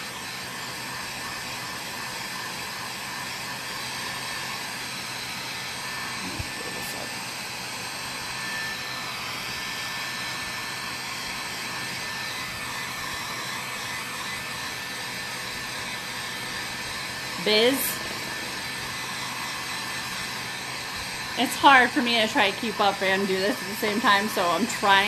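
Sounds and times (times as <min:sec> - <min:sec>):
electric blower hissing: 0:00.0 - 0:25.0.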